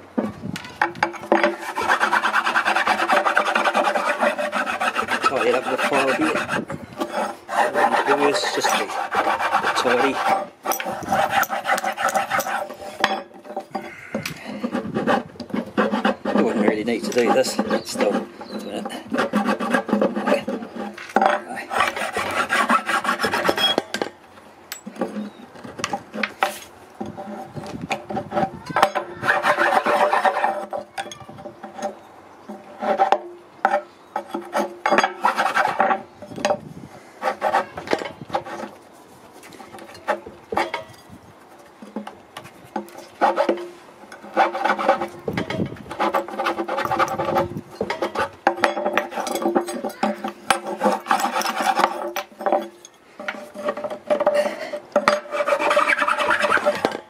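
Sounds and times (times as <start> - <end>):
sanding wood by hand: 1.3 - 13.1, 14.5 - 23.8, 26.2 - 30.8, 34.3 - 36.0, 37.2 - 40.7, 42.7 - 52.5, 53.3 - 57.0.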